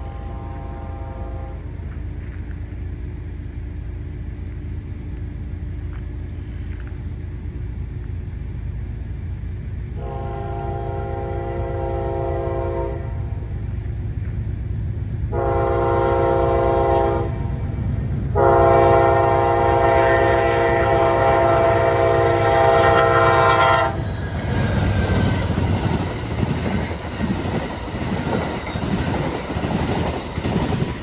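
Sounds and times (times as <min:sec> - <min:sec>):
locomotive horn blasts: 0:00.0 - 0:01.7, 0:10.0 - 0:13.2, 0:15.3 - 0:17.5, 0:18.3 - 0:24.0
train rumble and wheel clatter: 0:00.0 - 0:31.0.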